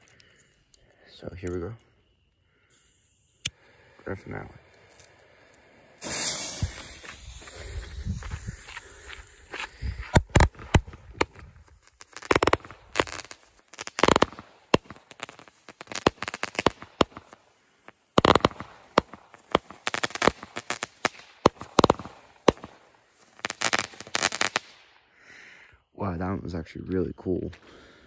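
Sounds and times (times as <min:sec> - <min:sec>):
firework crackles: 0:02.7 - 0:25.0
fireworks shots and bursts: 0:06.0 - 0:08.8, 0:10.1 - 0:25.0.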